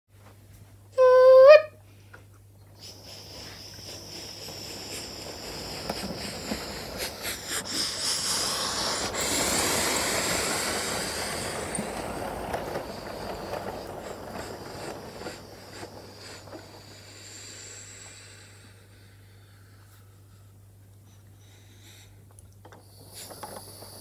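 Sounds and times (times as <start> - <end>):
toy train whirring rattle: 2.8 - 17.6, 22.8 - 24.0
wheel clicks over track joints: 3.9 - 16.9.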